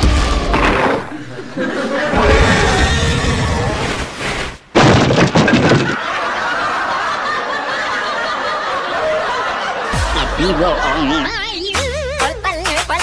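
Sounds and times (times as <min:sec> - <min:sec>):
cartoon crash onto rock: 0:04.7 - 0:06.0.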